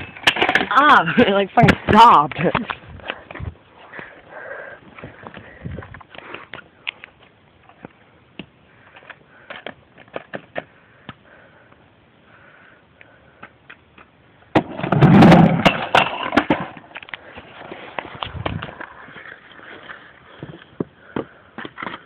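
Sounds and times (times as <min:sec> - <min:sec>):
skateboard wheels on rough concrete: 0:13.4 - 0:22.0.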